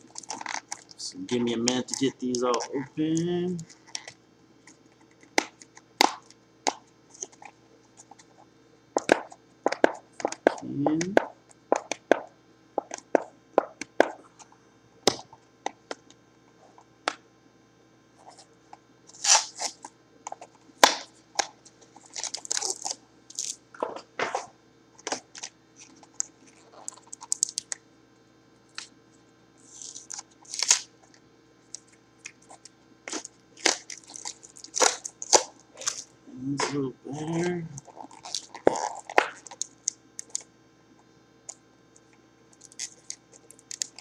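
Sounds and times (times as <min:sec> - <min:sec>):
cardboard crinkling and tearing: 0:22.0 - 0:24.0, 0:29.7 - 0:30.9, 0:33.1 - 0:36.1, 0:37.8 - 0:39.6.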